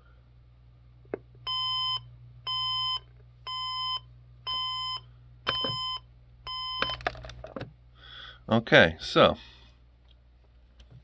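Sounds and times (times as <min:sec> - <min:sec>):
alarm clock beeping: 0:01.5 - 0:07.0.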